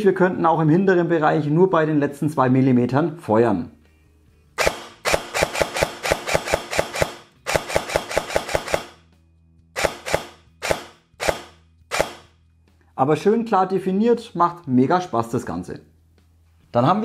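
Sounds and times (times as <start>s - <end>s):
airsoft rifle shots: 4.6s - 9.0s, 9.8s - 12.3s.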